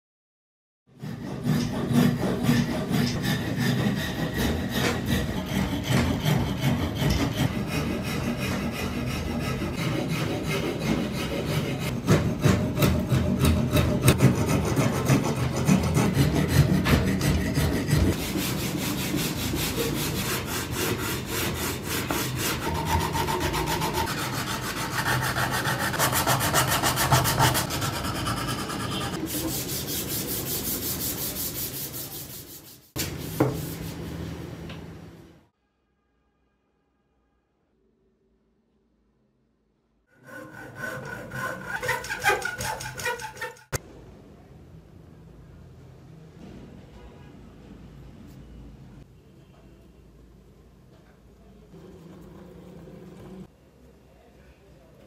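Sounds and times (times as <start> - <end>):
wood rasp scraping: 1.0 - 32.9, 40.2 - 43.8
sandpaper rubbing wood: 13.4 - 34.0, 40.2 - 43.8.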